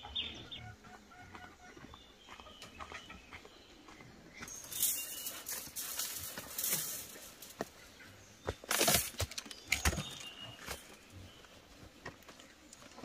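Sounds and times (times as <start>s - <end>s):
footsteps on dirt path: 0.8s - 13.0s
rustle of brushing past plants: 4.5s - 7.8s
baskets knocking and tapping: 4.5s - 11.1s.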